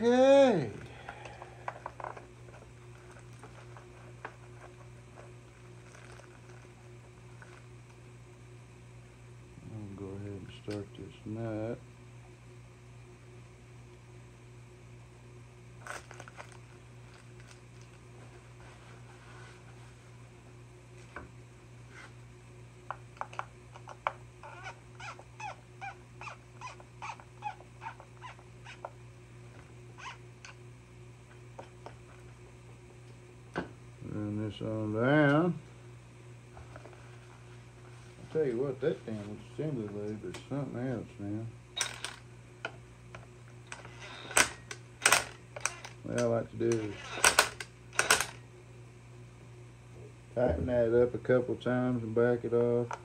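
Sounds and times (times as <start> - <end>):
electrical hum: 0.0 - 53.0
screw clicking: 43.7 - 46.0, 46.7 - 48.4.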